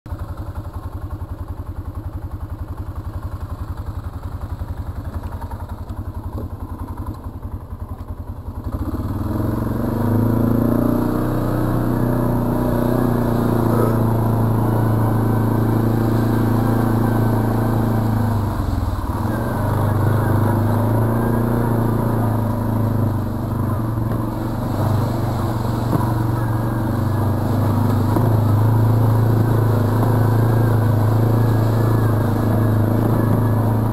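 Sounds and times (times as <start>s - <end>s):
quad bike engine: 0.1s - 33.9s.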